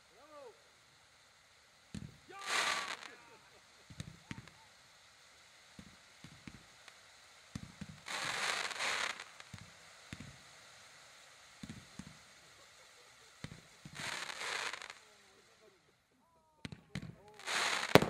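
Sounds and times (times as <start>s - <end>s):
firework hissing burst: 0.0s - 15.9s, 16.6s - 18.0s
firework pops: 1.9s - 4.8s, 5.6s - 10.7s, 11.4s - 15.2s, 16.6s - 18.0s.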